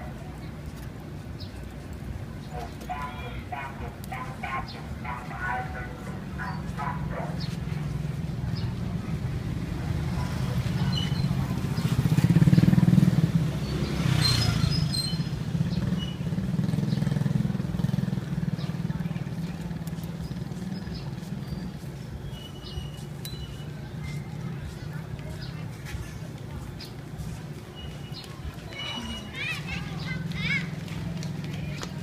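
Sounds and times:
motorbike engine running: 0:06.0 - 0:21.8.

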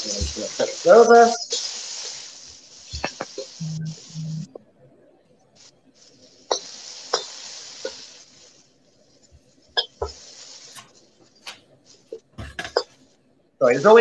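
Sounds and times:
meat sizzling in a wok: 0:00.0 - 0:03.6, 0:06.5 - 0:08.6, 0:09.8 - 0:10.8.

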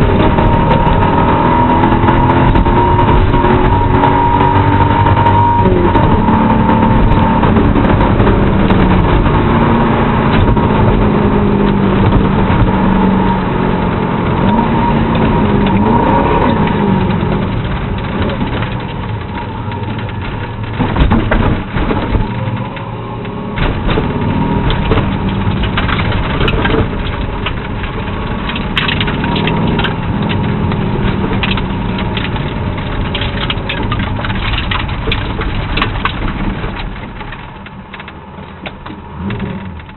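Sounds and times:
car engine running at low revs: 0:00.0 - 0:39.9
tyres crunching gravel: 0:14.4 - 0:39.9.

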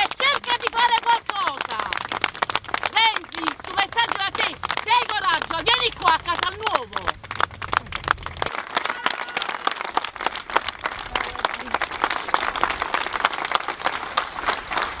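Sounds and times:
crowd applauding: 0:00.0 - 0:15.0.

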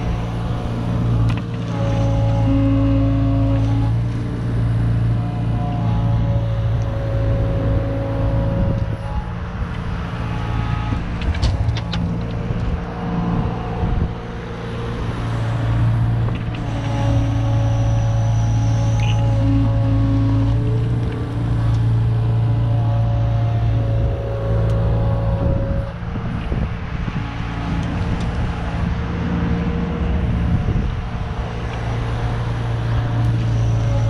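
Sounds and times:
excavator diesel engine running: 0:00.0 - 0:34.0.

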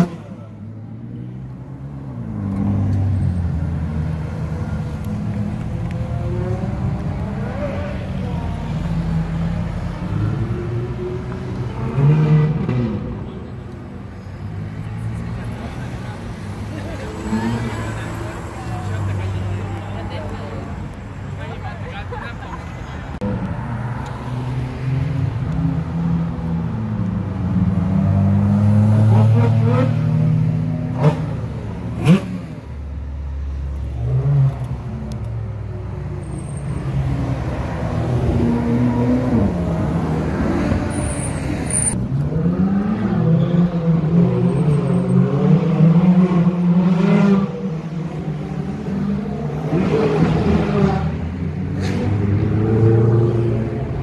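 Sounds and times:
sports cars revving past: 0:08.8 - 0:13.2, 0:23.6 - 0:54.0.

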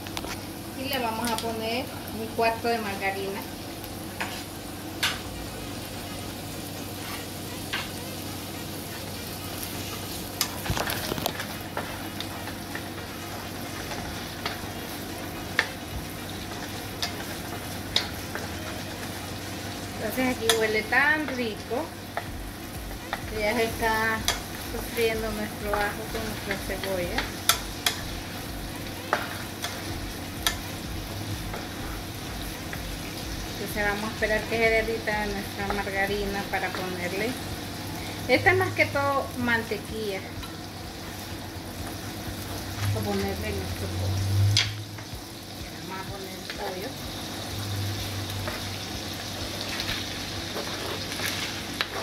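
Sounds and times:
onion and garlic sizzling in oil: 0:00.0 - 0:52.0
wooden spatula scraping a pan: 0:50.5 - 0:52.0.

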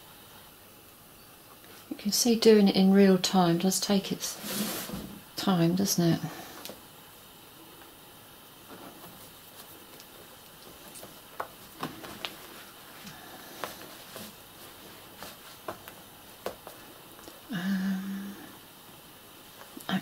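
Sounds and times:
fabric rustling: 0:08.6 - 0:17.4.

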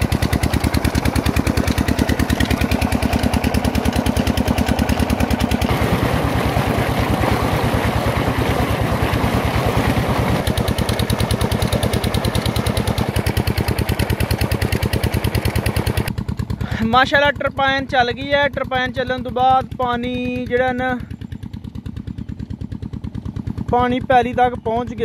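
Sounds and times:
water gushing from pipe: 0:00.0 - 0:16.1
pump engine running: 0:00.0 - 0:25.0.

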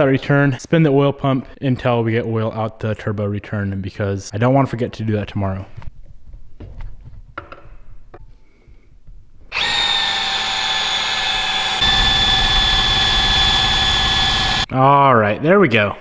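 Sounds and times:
cordless drill whine: 0:09.5 - 0:14.7.

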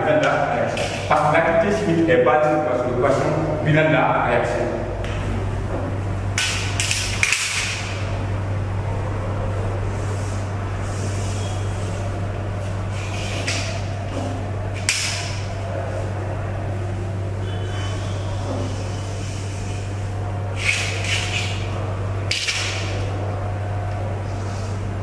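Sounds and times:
low hum: 0:01.5 - 0:25.0
chalk scraping on blackboard: 0:20.6 - 0:21.7.

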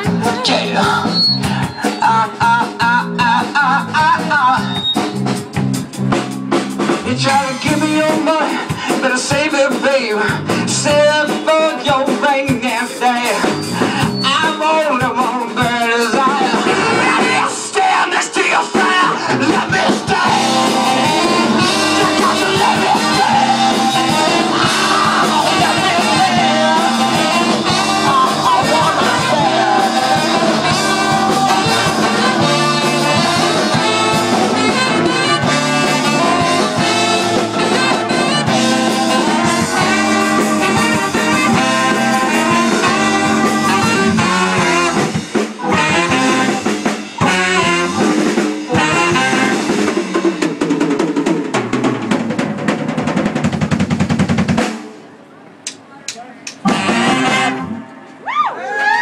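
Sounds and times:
live band music: 0:00.0 - 0:59.0
horn section playing: 0:18.8 - 0:50.5, 0:56.6 - 0:58.2.

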